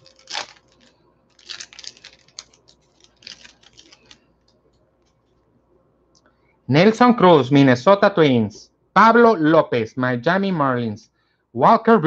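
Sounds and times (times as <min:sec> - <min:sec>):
wrapper being torn and crinkled: 0:00.0 - 0:04.3.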